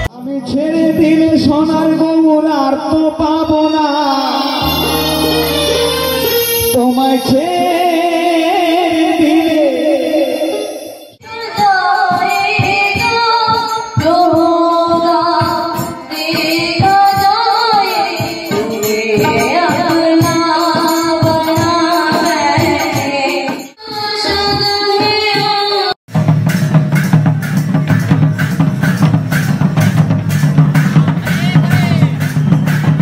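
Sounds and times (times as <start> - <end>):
live singing over a pa: 0.0 - 26.0
hand drum: 26.1 - 33.0.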